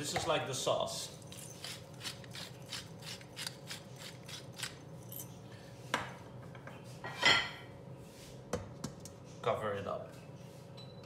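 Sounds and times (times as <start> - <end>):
pepper mill grinding: 1.2 - 5.2
kitchenware clattering: 6.0 - 7.7.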